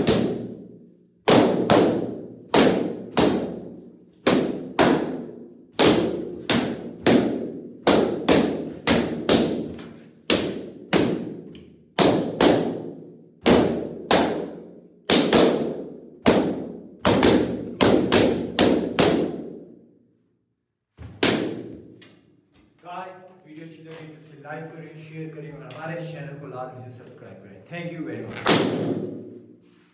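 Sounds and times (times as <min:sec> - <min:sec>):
balloons bursting: 0:28.2 - 0:29.5.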